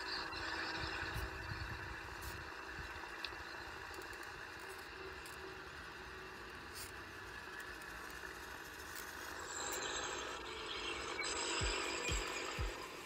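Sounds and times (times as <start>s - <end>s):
toy tractor motor whirring: 0.0s - 13.0s.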